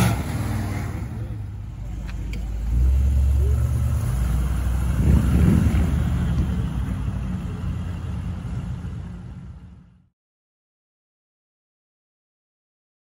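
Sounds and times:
car engine rumbling past: 0:00.0 - 0:10.1.

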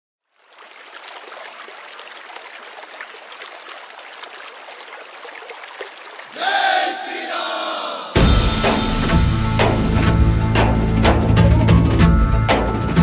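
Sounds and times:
rushing trickling water: 0:00.2 - 0:06.4.

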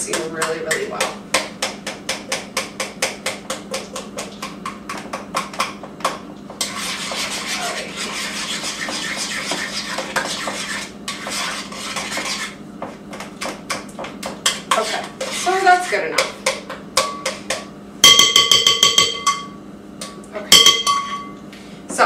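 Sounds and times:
spoon scraping and stirring: 0:06.6 - 0:13.3, 0:14.3 - 0:16.4
spoon tapping a bowl: 0:16.2 - 0:21.4.

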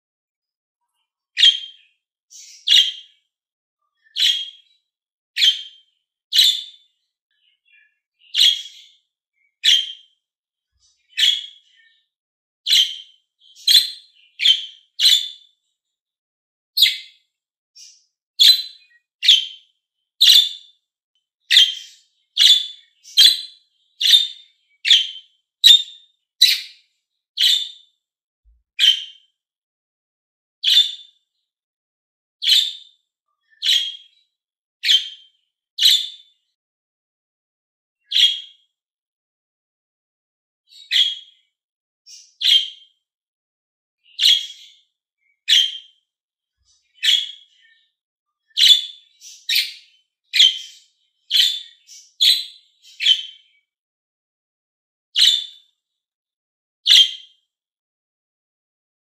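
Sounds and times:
budgerigar chirping: 0:01.4 - 0:03.1, 0:04.2 - 0:04.6, 0:05.4 - 0:06.8, 0:08.2 - 0:08.9, 0:09.6 - 0:10.1, 0:11.1 - 0:11.6, 0:12.7 - 0:15.4, 0:16.8 - 0:17.1, 0:17.8 - 0:19.6, 0:20.2 - 0:20.7, 0:21.5 - 0:26.8, 0:27.4 - 0:27.8, 0:28.8 - 0:29.2, 0:30.6 - 0:31.0, 0:32.4 - 0:32.8, 0:33.6 - 0:34.1, 0:34.8 - 0:35.2, 0:35.8 - 0:36.2, 0:38.1 - 0:38.5, 0:40.7 - 0:41.3, 0:42.1 - 0:42.8, 0:44.1 - 0:44.8, 0:45.5 - 0:45.9, 0:47.0 - 0:47.5, 0:48.6 - 0:53.4, 0:55.2 - 0:55.6, 0:56.9 - 0:57.2.

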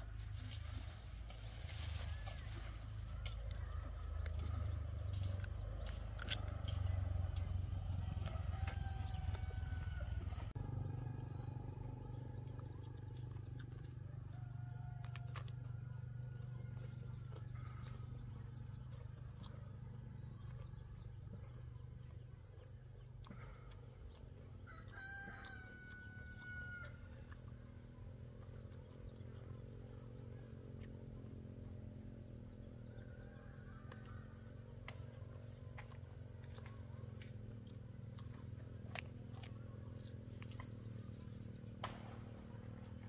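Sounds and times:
steady low hum: 0:00.0 - 0:43.0
rooster crowing: 0:08.0 - 0:10.5, 0:24.6 - 0:27.1.

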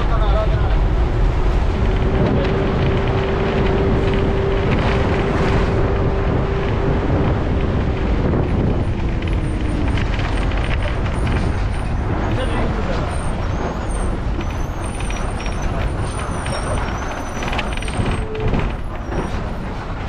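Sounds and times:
steady whine: 0:00.0 - 0:13.1
bus engine and road noise: 0:00.0 - 0:20.0
lower whine sliding down: 0:00.8 - 0:12.0.

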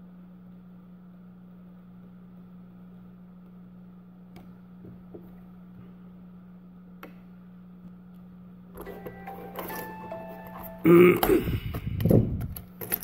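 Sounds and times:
steady low hum: 0:00.0 - 0:13.0
phone boot-up chime: 0:08.8 - 0:11.5.

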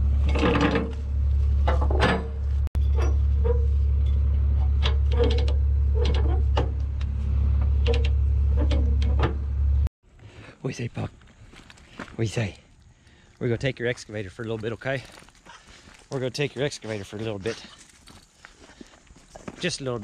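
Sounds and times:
loose gear clunking and rattling: 0:00.0 - 0:09.9
vehicle engine drone: 0:00.0 - 0:09.9.

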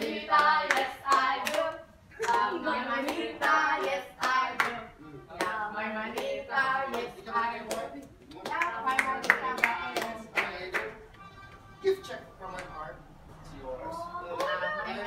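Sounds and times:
hands clapping: 0:00.0 - 0:04.8, 0:05.4 - 0:06.3, 0:06.9 - 0:11.2, 0:14.4 - 0:14.7
group singing a chant: 0:00.0 - 0:11.1.

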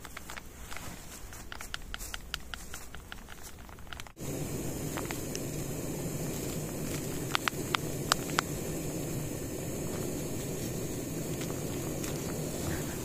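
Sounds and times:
sharp crackles: 0:00.0 - 0:13.0
pot of water hissing: 0:04.0 - 0:13.0.

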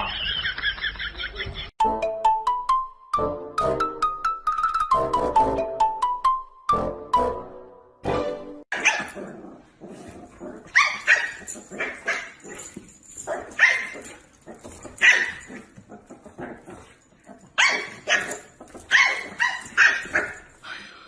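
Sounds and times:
puppy yapping: 0:17.6 - 0:20.4.

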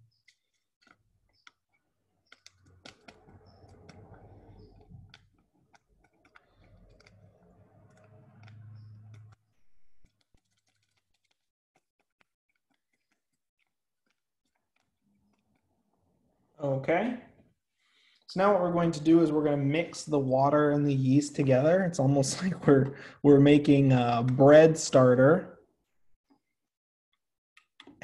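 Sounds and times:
paper packet crinkling: 0:05.1 - 0:15.7.

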